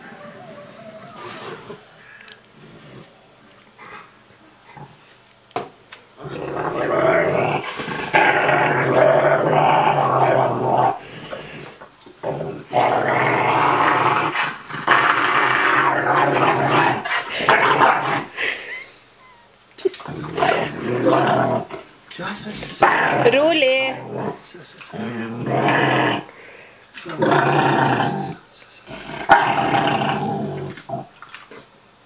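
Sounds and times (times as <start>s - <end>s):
dog growling grumbles: 6.2s - 18.3s, 20.0s - 21.8s, 22.6s - 26.3s, 27.1s - 31.1s.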